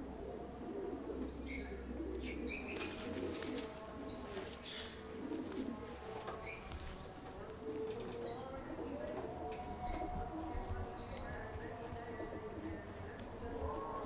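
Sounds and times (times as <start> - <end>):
pigeons cooing: 0.0 - 13.0
small birds chirping: 1.2 - 9.1.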